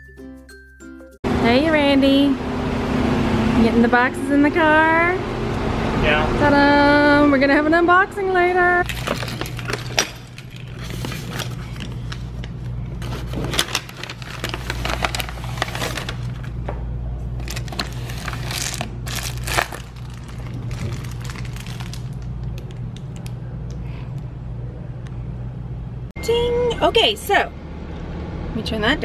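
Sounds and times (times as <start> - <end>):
steady low hum: 1.3 - 29.0
hand rummaging and crinkling mailer: 8.8 - 16.6, 17.4 - 23.3.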